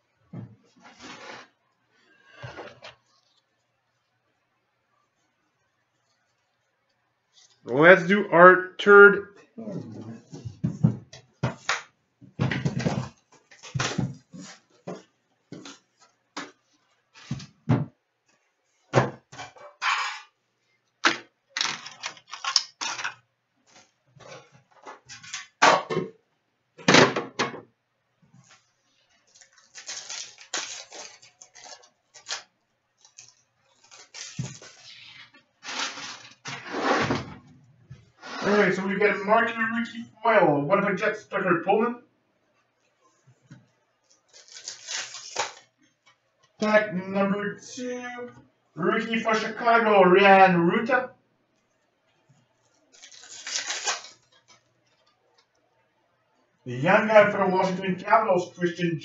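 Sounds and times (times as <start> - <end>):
cardboard and wrapper crinkling: 21.6 - 24.0, 28.5 - 36.5, 44.0 - 45.7, 52.6 - 55.2.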